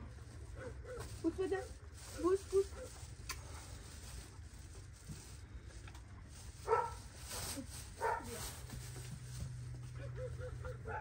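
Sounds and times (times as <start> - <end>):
dog barking: 6.6 - 7.0, 8.0 - 8.4, 10.0 - 11.0.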